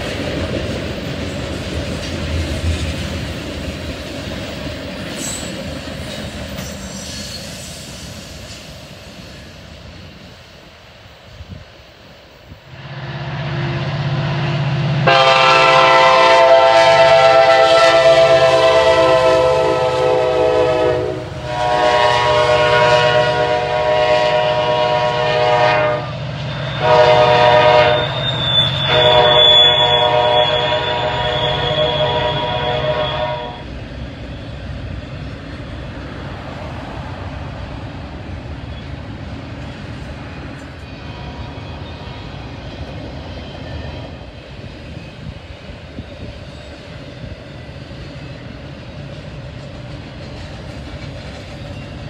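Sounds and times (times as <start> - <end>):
diesel locomotive engines: 0.0 - 52.0
loud multi-note air horn: 12.9 - 26.2, 26.8 - 33.6.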